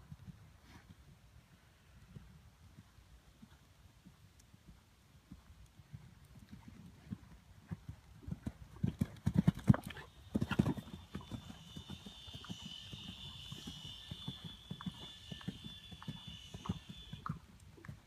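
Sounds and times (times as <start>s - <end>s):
steady high tone: 10.2s - 17.2s.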